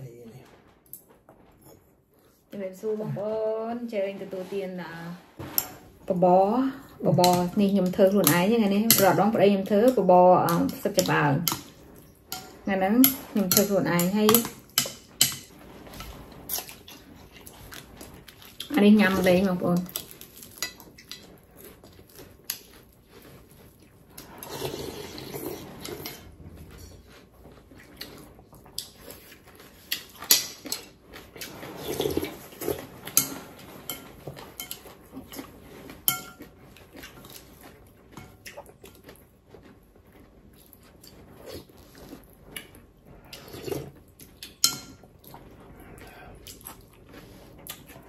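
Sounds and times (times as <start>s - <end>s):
spoons clinking on ceramic bowls: 8.2s - 9.3s, 36.1s - 36.5s.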